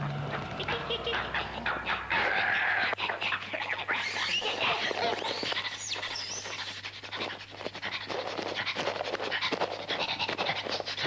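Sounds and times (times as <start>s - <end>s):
dog panting: 4.2s - 11.0s.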